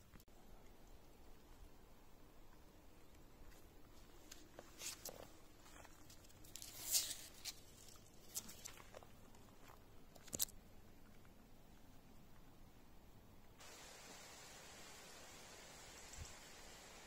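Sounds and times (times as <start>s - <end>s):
footsteps crunching on dry trail: 3.5s - 9.8s.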